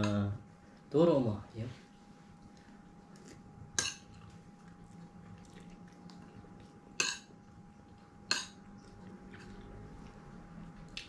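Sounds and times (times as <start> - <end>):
cutlery clinking against a dish: 3.8 - 4.1, 7.0 - 7.3, 8.3 - 8.6.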